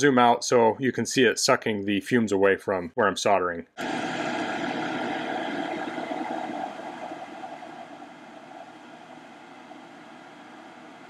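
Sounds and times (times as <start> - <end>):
small electric fan running: 3.8 - 11.0.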